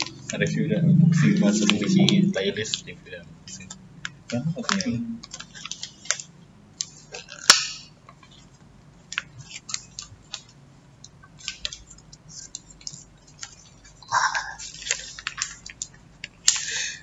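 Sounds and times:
wrapping crinkles and clicks: 0:03.5 - 0:16.9.

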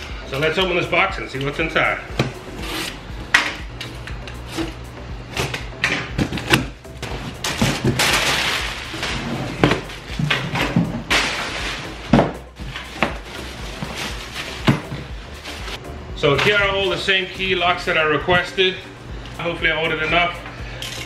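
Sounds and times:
plastic bag rustling: 0:07.3 - 0:10.2, 0:12.8 - 0:15.8.

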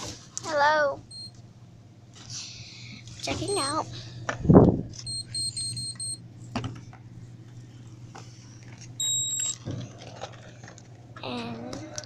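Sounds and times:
checkout scanner beeps: 0:01.1 - 0:01.3, 0:03.5 - 0:03.8, 0:05.0 - 0:06.2, 0:09.0 - 0:09.6.

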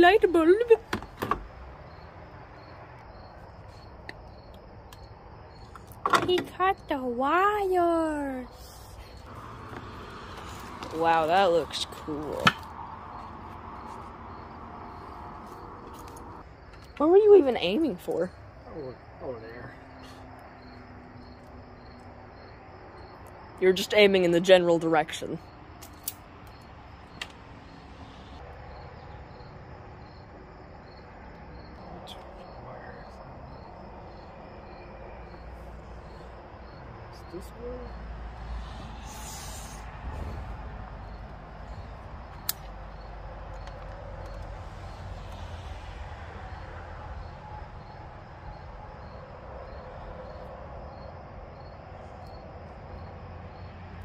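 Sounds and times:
crickets chirping: 0:00.0 - 0:54.0.

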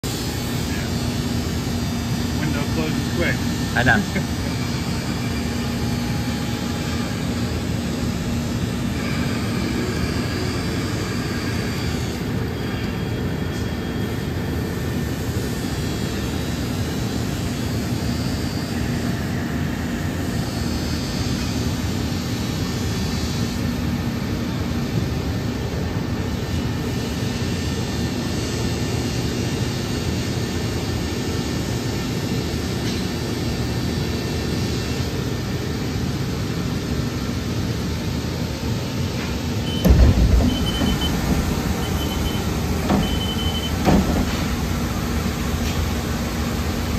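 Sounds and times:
lathe low hum: 0:34.6 - 0:46.9.

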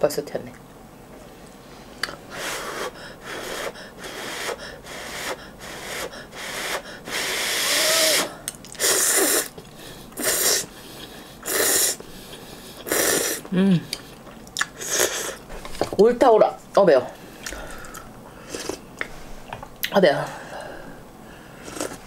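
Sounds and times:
person slurping noodles: 0:02.4 - 0:09.6, 0:10.2 - 0:10.7, 0:11.4 - 0:12.0, 0:12.8 - 0:13.5, 0:14.8 - 0:15.4, 0:21.6 - 0:22.0.

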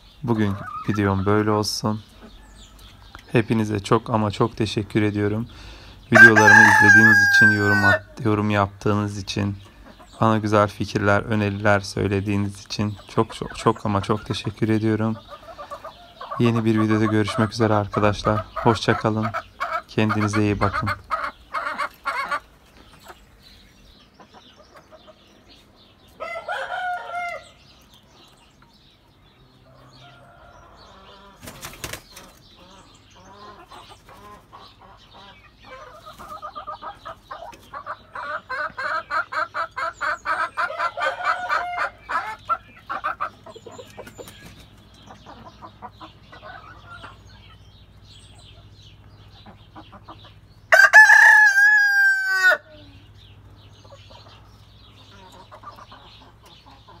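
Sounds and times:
chickens clucking: 0:00.0 - 0:57.0
chicken squawk: 0:05.6 - 0:08.2, 0:15.2 - 0:23.2, 0:32.5 - 0:44.3, 0:49.3 - 0:53.0.

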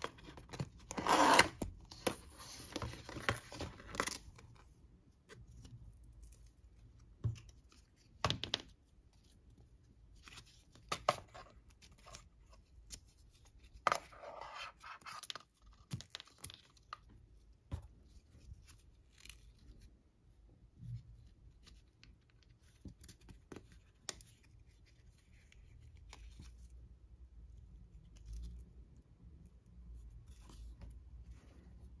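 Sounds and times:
hook-and-loop strap ripping open: 0:00.9 - 0:01.6.

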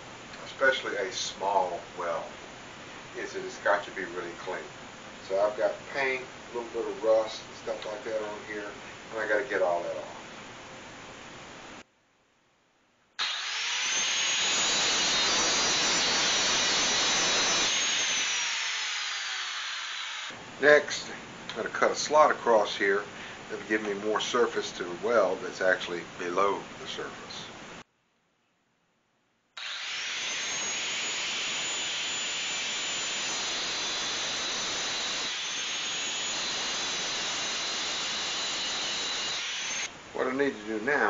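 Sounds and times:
angle grinder grinding metal: 0:13.2 - 0:20.4, 0:29.6 - 0:39.9.

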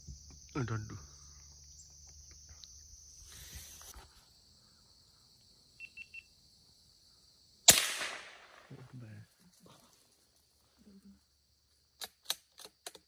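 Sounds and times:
crickets buzzing: 0:00.0 - 0:13.0
gunshot: 0:07.7 - 0:08.8.

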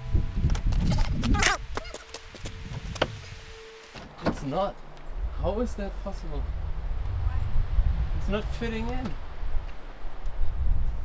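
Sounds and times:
wind buffeting microphone: 0:00.0 - 0:01.8, 0:04.8 - 0:11.0.

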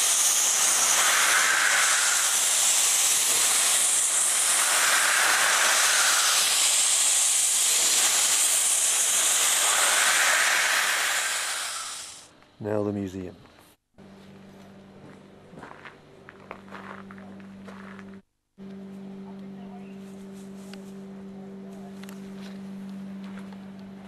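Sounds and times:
steam hissing from locomotive: 0:00.0 - 0:12.3.

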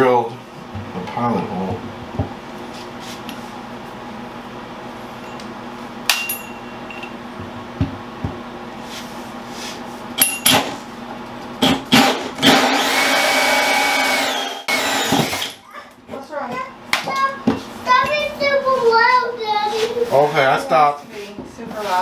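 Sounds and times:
cordless drill motor running: 0:11.9 - 0:15.6
hole saw cutting through wood: 0:11.9 - 0:15.6.

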